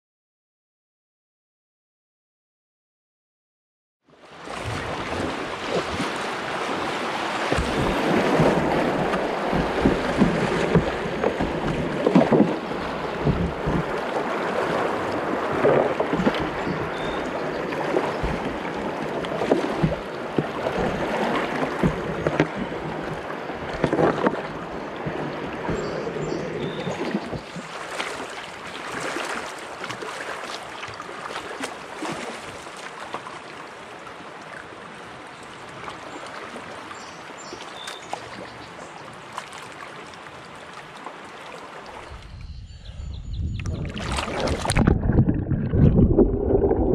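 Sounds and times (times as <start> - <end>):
river water rushing and splashing: 4.2 - 42.3, 43.8 - 45.2
water splashing on plastic hull: 4.4 - 33.4, 43.6 - 46.9.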